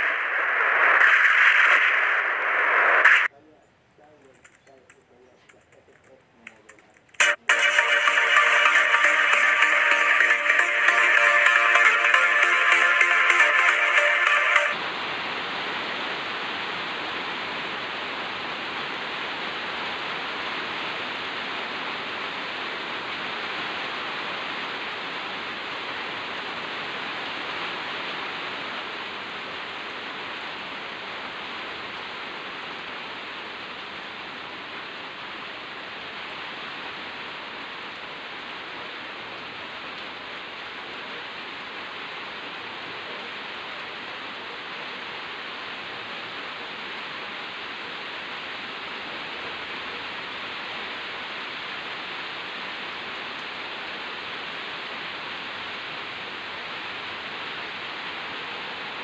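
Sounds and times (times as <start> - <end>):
rain falling on leaves: 14.8 - 59.0.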